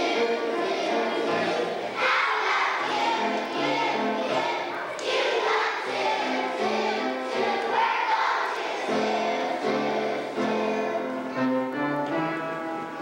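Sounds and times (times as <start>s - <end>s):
choir singing held notes: 0.0s - 13.0s.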